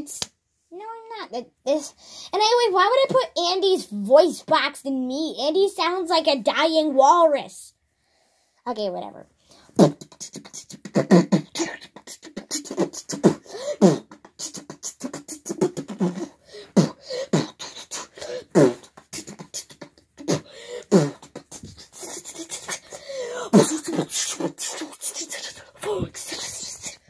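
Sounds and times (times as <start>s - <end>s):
beatboxing clicks pops and hisses: 9.8s - 27.0s
sung vocal swoops: 9.8s - 27.0s.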